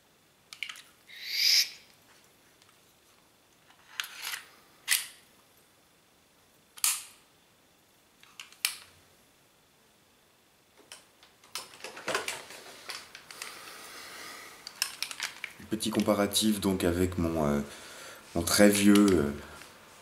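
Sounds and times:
rustling handling noise: 11.4s - 13.8s, 14.6s - 16.7s.

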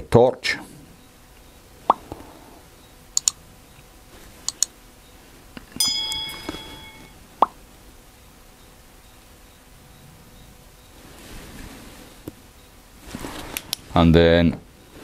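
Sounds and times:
bell ding: 5.8s - 7.2s.

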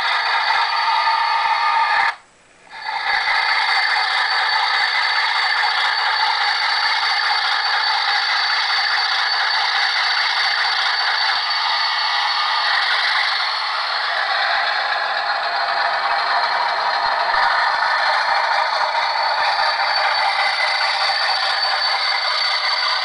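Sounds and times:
model diesel engine sound: 0.0s - 23.0s
model freight cars rattling on track: 0.0s - 23.0s.

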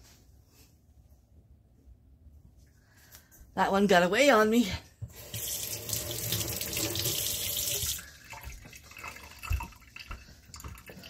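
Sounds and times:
tap running into sink: 5.1s - 11.0s.

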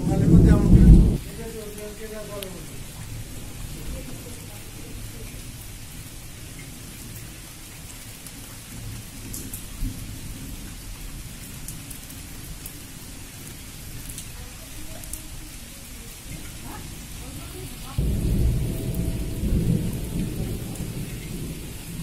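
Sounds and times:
thunder rumbling: 0.0s - 1.8s, 16.3s - 22.0s
raindrops ticking: 0.0s - 22.0s
steady rain: 0.0s - 22.0s.

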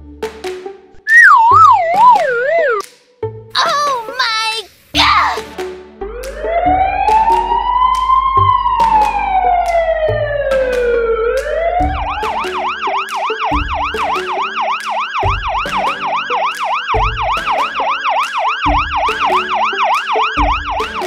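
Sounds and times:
background music with steady beat: 0.0s - 1.0s, 4.9s - 21.0s
siren fast yelp: 1.0s - 2.8s.

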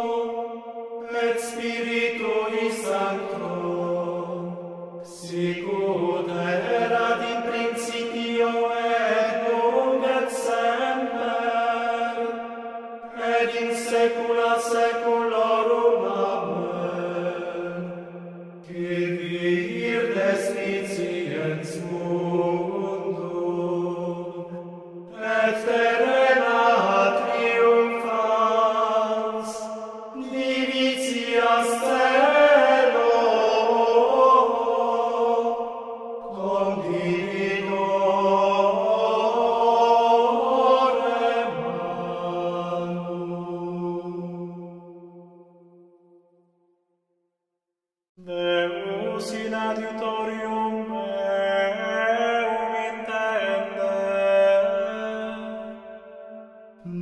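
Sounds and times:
men singing plainchant: 1.0s - 12.4s, 13.1s - 17.8s, 18.6s - 44.4s.

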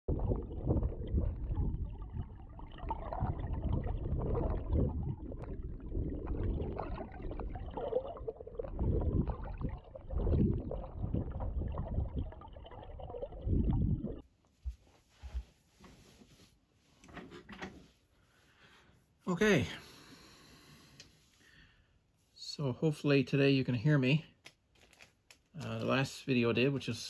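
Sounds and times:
muffled underwater stream rush: 0.0s - 14.2s.

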